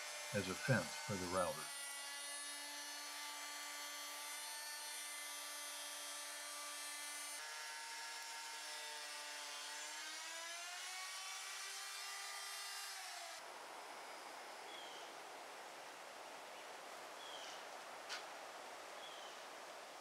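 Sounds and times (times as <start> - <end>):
electric router whining: 0.0 - 15.1.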